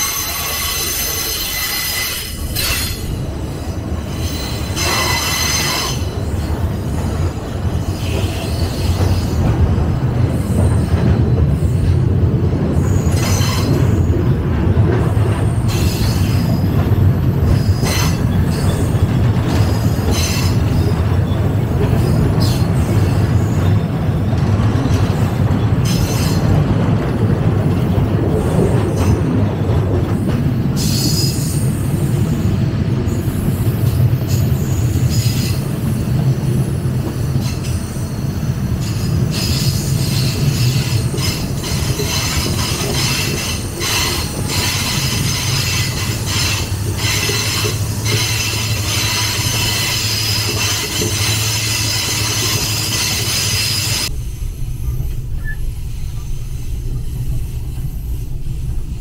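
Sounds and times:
high-pitched wheel squeals: 0:00.0 - 0:03.1, 0:04.1 - 0:06.4
train wheels rumbling on rails: 0:00.0 - 0:59.0.

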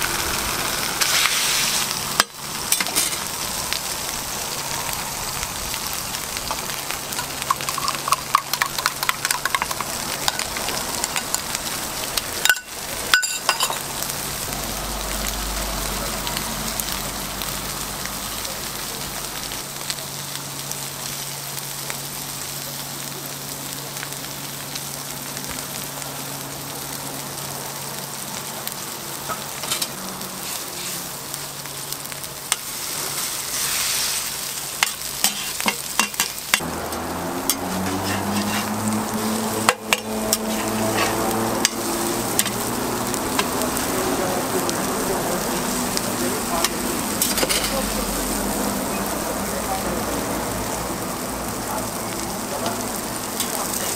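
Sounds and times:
food sizzling on griddle: 0:00.0 - 0:53.9
metal spatula scraping griddle: 0:01.0 - 0:03.3, 0:29.6 - 0:31.0, 0:32.9 - 0:36.4, 0:37.5 - 0:38.8, 0:39.7 - 0:41.8, 0:47.2 - 0:47.8.

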